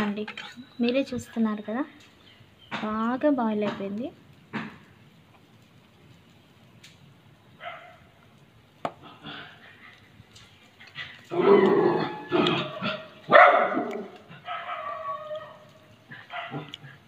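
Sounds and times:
dog barking: 7.6s - 8.1s, 12.6s - 15.6s, 16.3s - 16.8s.

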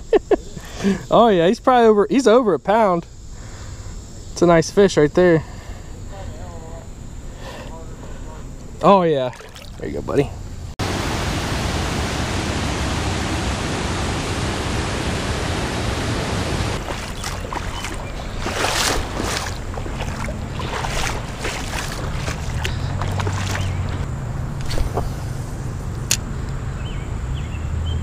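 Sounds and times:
uneven water sounds: 8.8s - 25.2s
waterfall roaring: 10.8s - 24.0s.

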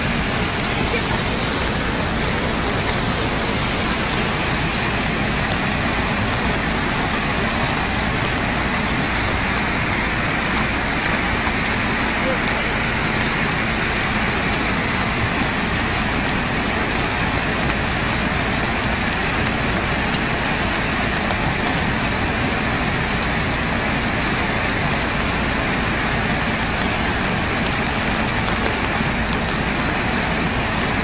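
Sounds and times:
river floodwater rushing: 0.0s - 31.0s.

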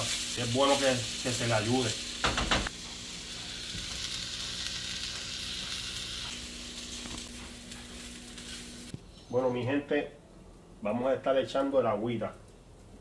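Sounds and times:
rice sizzling in oil: 0.0s - 9.0s.

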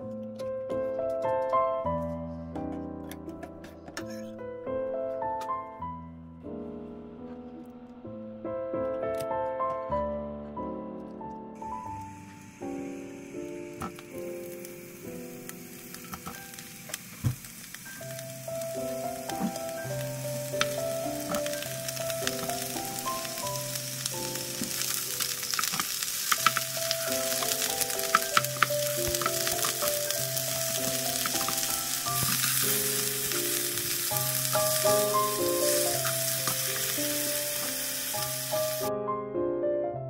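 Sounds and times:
gentle piano music: 0.0s - 40.0s
cabbage sizzling in oil: 11.6s - 38.9s.

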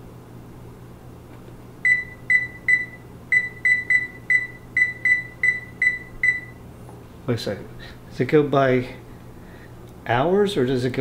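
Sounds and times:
short high beeps: 1.9s - 6.6s.

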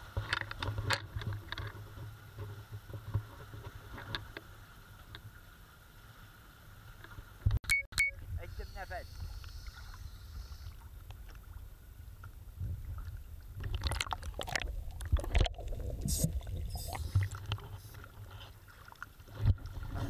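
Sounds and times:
sea water sloshing and splashing: 9.2s - 20.0s.

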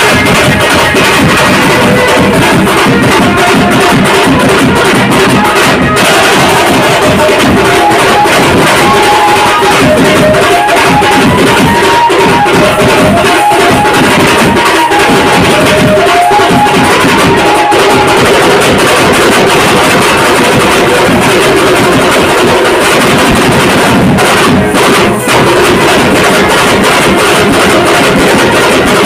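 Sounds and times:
live band music: 0.0s - 19.4s
fast drumming: 0.0s - 29.0s
high held melody: 0.0s - 29.0s.

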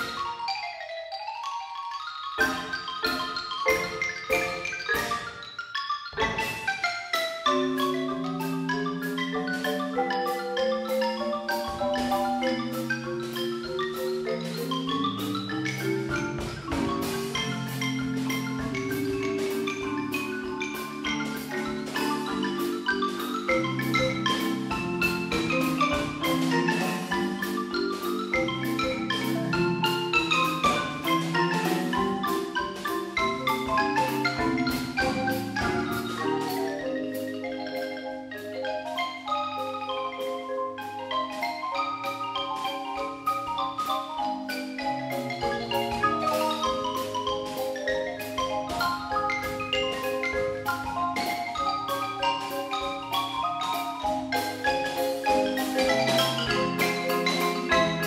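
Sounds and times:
marimbas playing fast melody: 0.0s - 58.0s
drum kit steady beat: 2.4s - 5.4s, 7.5s - 37.5s, 39.5s - 58.0s.

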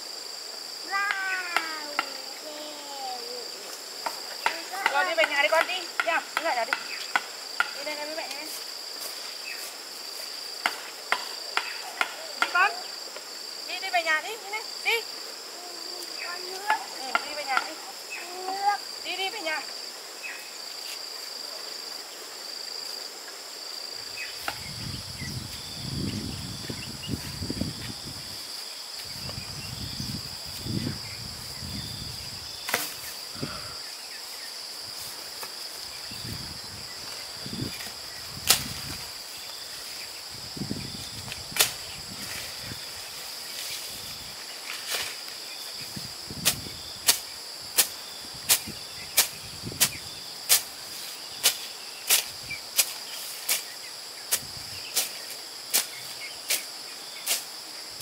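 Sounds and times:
insects shrilling: 0.0s - 58.0s
grass being cut swishing: 46.4s - 57.6s.

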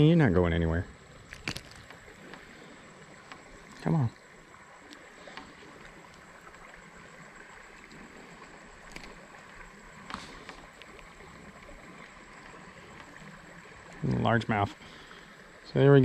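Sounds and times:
creek water running over gravel: 0.0s - 16.0s
small sharp splashes: 8.7s - 13.3s.

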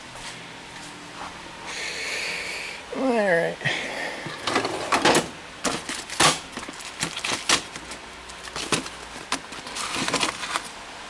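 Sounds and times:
hand tools clattering in metal drawer: 4.4s - 6.4s.

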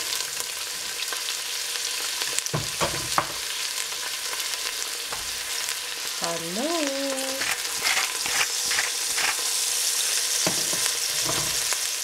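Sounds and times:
onions sizzling in oil: 0.0s - 12.0s
louder frying clicks: 10.4s - 11.8s.

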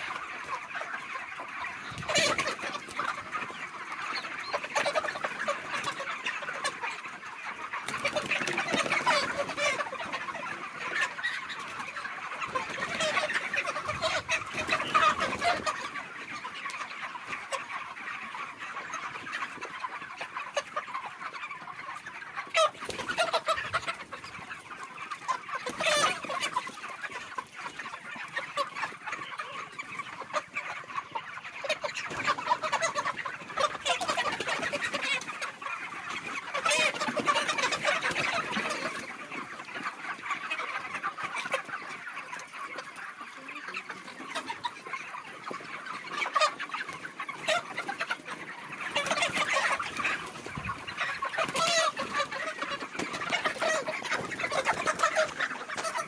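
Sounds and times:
chickens clucking: 0.0s - 56.0s.

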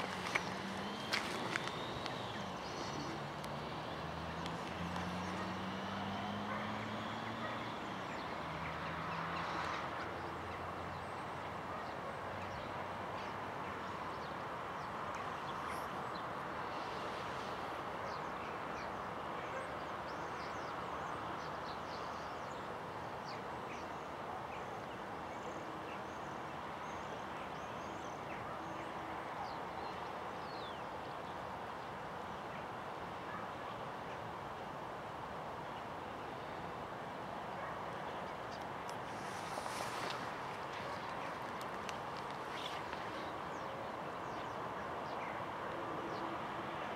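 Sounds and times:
small birds chirping: 0.0s - 12.8s, 37.6s - 45.4s.

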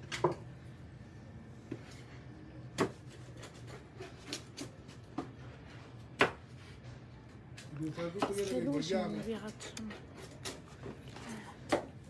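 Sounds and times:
pizza cutter crunching crust: 2.8s - 5.1s.

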